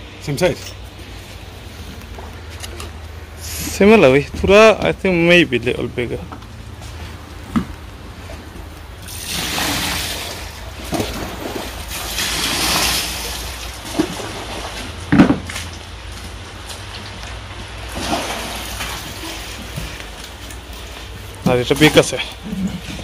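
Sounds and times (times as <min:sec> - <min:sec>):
water splashing: 0:07.2 - 0:16.0, 0:16.6 - 0:23.0.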